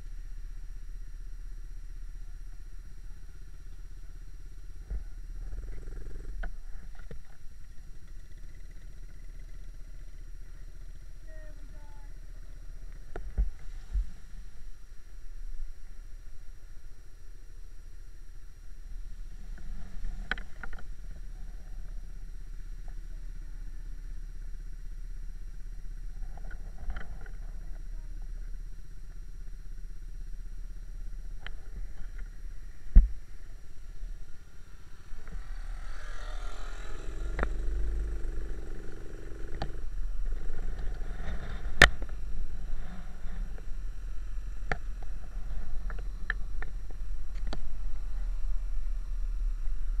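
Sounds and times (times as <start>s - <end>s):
motorbike engine running: 17.8s - 50.0s.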